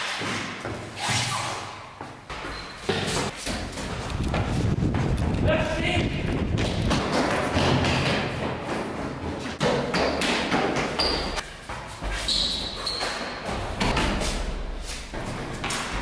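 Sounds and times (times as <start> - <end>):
heavy thuds and knocks: 6.2 - 10.9.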